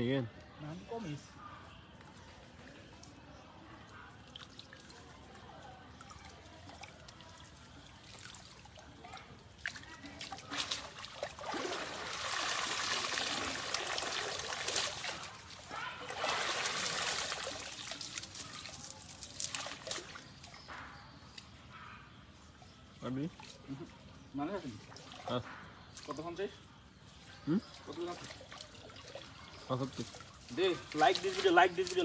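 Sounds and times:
water streaming off net: 9.6s - 20.2s
hands splashing in water: 9.6s - 20.6s.

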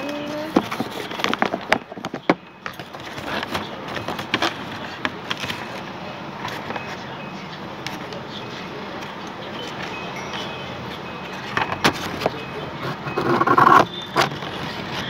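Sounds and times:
paper rustling and crackling: 0.0s - 5.8s.

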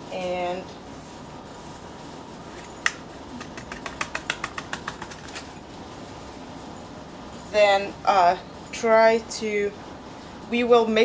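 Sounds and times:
low room hum: 0.0s - 11.0s
plastic tapping glass bottle: 2.9s - 5.4s.

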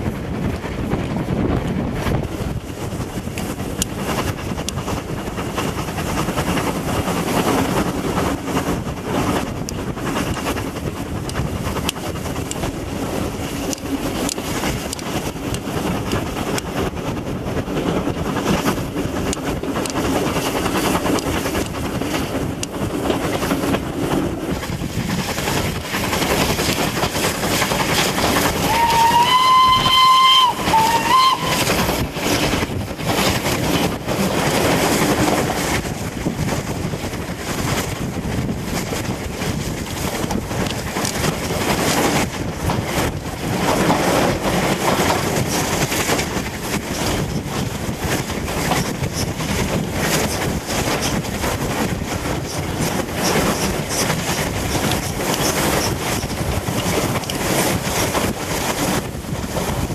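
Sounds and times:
moving train rushing noise: 0.0s - 59.9s
wind on microphone: 0.0s - 59.9s
steam locomotive whistle: 28.6s - 31.9s.

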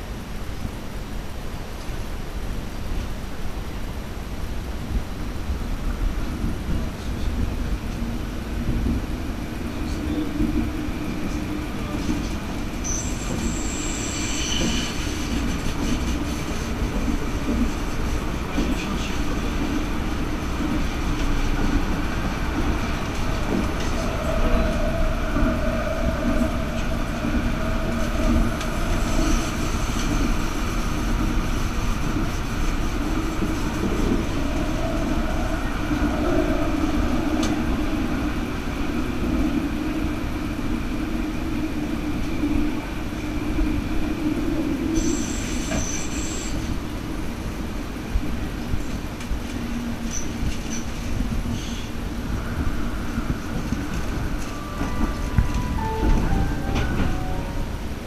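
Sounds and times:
tram rolling rumble: 0.0s - 58.0s
wheel squeal: 12.8s - 15.2s.

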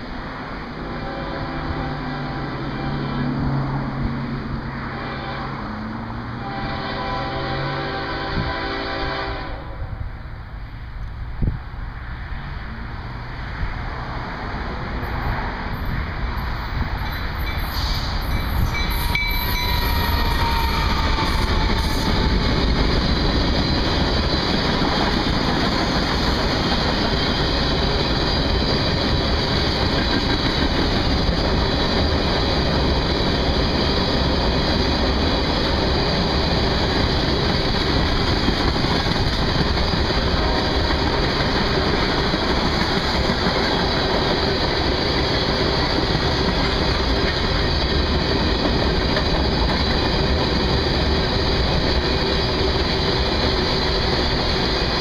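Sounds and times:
freight train wheels on rails: 0.0s - 55.0s.

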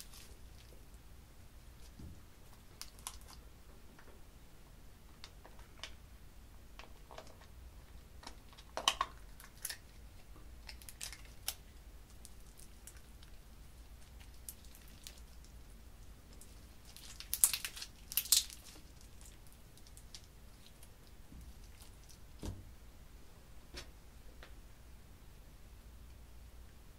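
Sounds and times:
sticky slime squishes: 0.0s - 1.0s, 1.6s - 3.5s, 6.9s - 22.5s.

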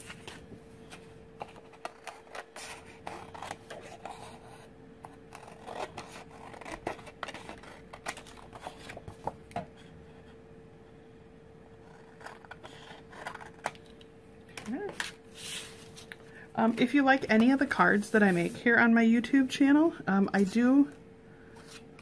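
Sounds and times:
cardstock rustling and scraping: 14.7s - 18.7s.

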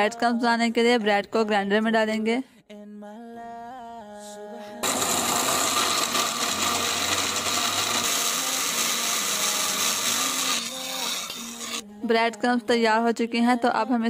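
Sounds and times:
mixer grinder whirring: 4.8s - 11.8s.

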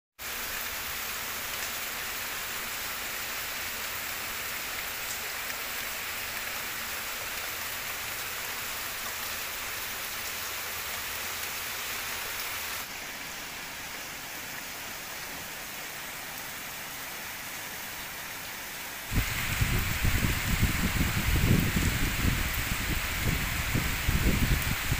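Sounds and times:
rain on palm fronds: 0.2s - 24.9s.

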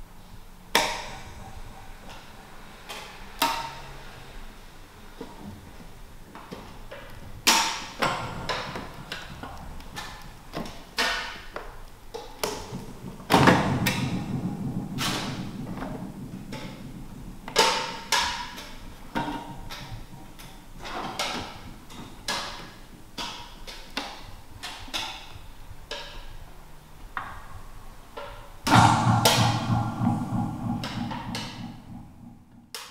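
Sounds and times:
heavy ringing hits: 1.0s - 2.6s, 12.7s - 19.7s, 28.7s - 32.7s.

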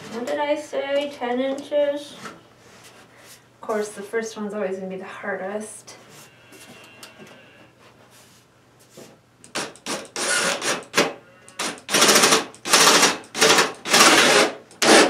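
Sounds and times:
cordless drill driving screw: 9.5s - 15.0s.

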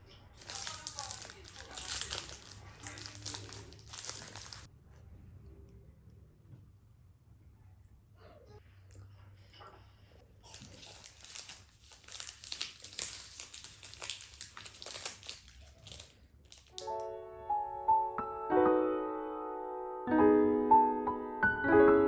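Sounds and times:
foil wrapper crinkling: 0.2s - 4.7s, 10.4s - 17.1s
soft piano music: 16.8s - 22.0s.

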